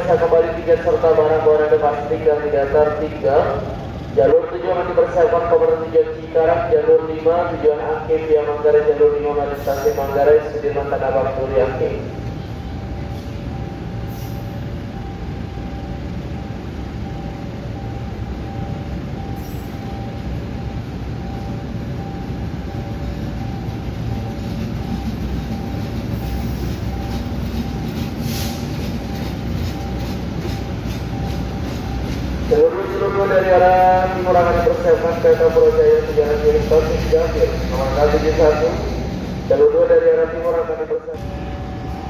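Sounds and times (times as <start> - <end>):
train wheels rumbling on rail: 0.0 - 42.0
rail-joint clicks: 24.0 - 32.6.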